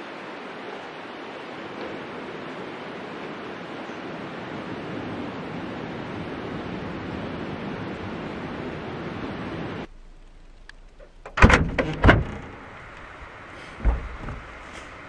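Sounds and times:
steady rushing noise: 0.0 - 15.0
loud knocks and clatter: 11.3 - 12.7, 13.8 - 14.8.

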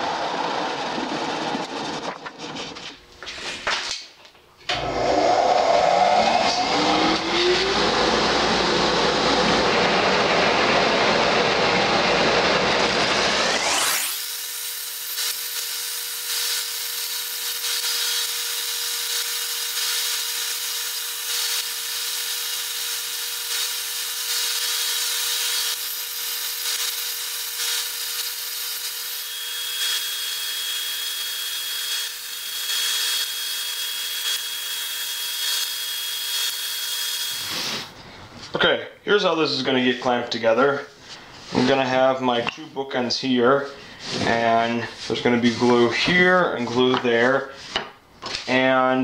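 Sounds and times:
disc sander grinding wood: 4.7 - 37.9.

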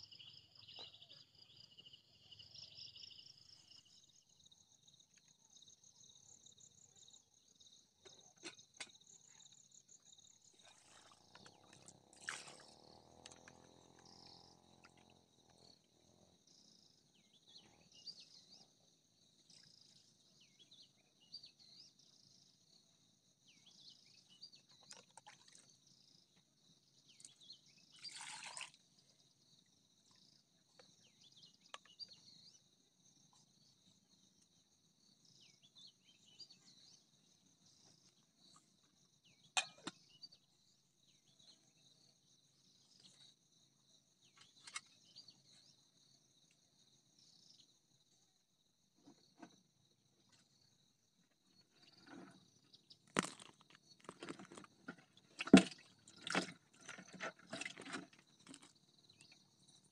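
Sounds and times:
crickets chirping: 0.0 - 24.6, 25.2 - 59.9
rice washed in metal pot: 28.0 - 28.8, 53.2 - 58.8.

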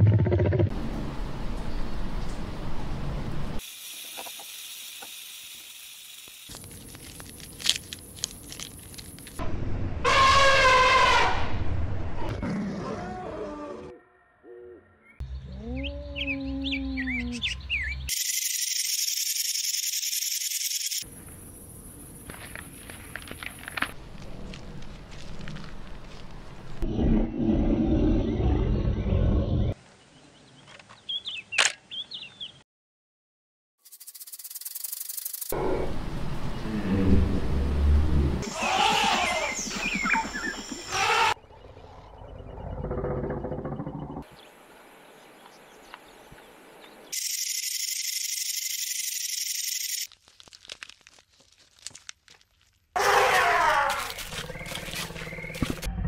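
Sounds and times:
lion growling: 26.8 - 29.8, 35.6 - 39.2, 41.6 - 44.3
faint crackle: 50.0 - 52.9.

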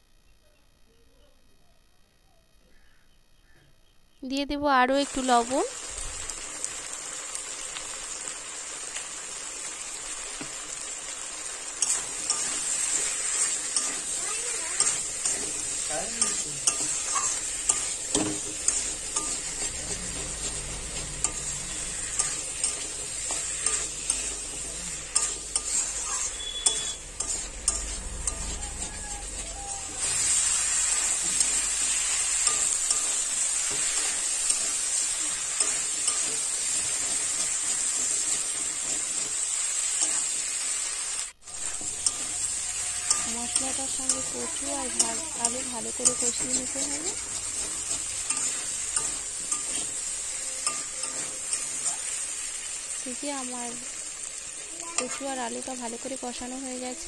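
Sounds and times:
food sizzling in oil: 4.2 - 57.0
spatula scraping metal pan: 11.8 - 39.4, 41.4 - 52.4.

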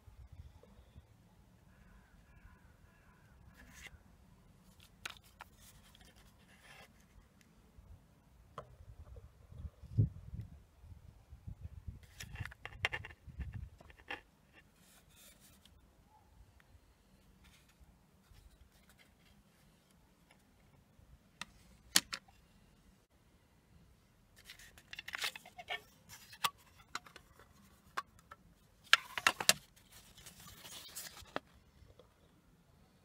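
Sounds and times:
paper rustling: 28.9 - 31.5.

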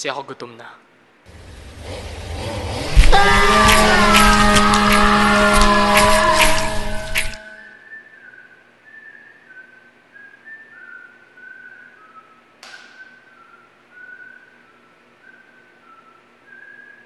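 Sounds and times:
person whistling a slow tune: 7.4 - 17.0.

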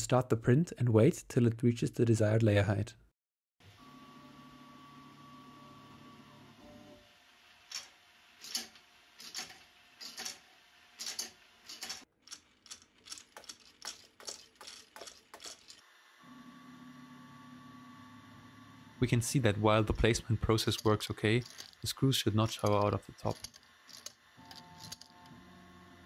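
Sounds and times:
sharp mechanical clicks: 11.0 - 15.8.

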